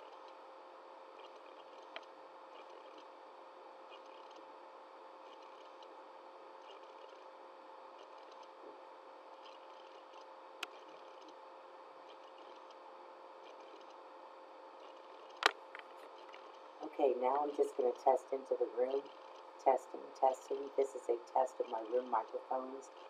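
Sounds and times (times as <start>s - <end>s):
electrical hum: 0.0s - 23.0s.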